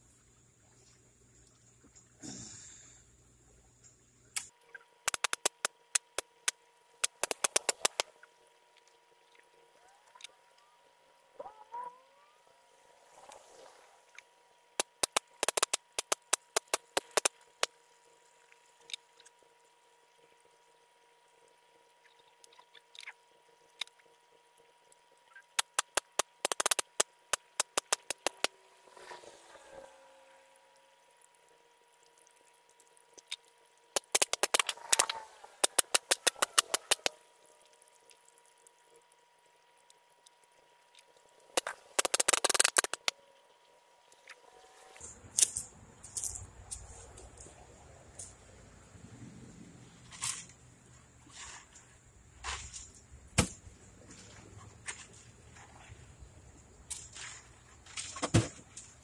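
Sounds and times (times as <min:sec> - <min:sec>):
faint steady hum: 0:00.0 - 0:59.0
bursts of rapid sharp clicks: 0:04.4 - 0:08.1, 0:14.8 - 0:17.7, 0:25.6 - 0:28.5, 0:33.9 - 0:37.2, 0:41.6 - 0:43.2.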